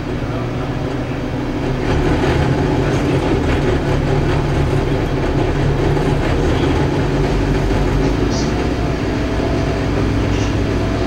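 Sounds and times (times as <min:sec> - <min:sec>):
bus diesel engine droning: 0:00.0 - 0:11.0
interior rattles: 0:00.0 - 0:11.0
road rumble: 0:00.0 - 0:11.0.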